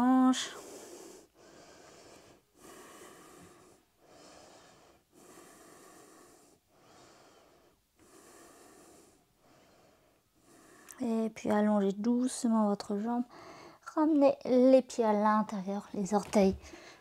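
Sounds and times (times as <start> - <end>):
faint nose breathing: 0.4 - 11.0, 13.3 - 13.8, 16.6 - 17.0.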